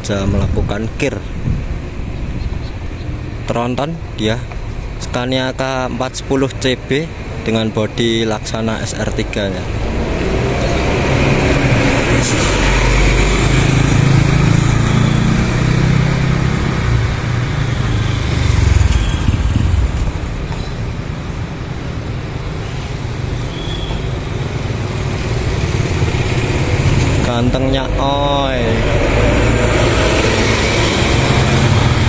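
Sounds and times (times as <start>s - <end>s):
tyres on road: 0.0s - 32.0s
diesel engine rumble: 4.0s - 23.4s.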